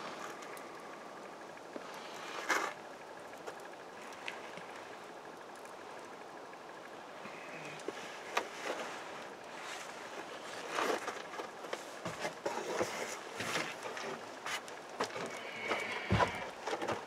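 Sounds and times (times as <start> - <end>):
campfire crackling: 0.0 - 17.0
rustles and knocks from handling: 9.6 - 17.0.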